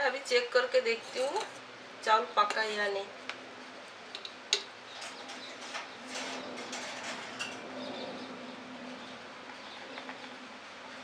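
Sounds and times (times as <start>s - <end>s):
low hum and hiss: 0.0s - 11.0s.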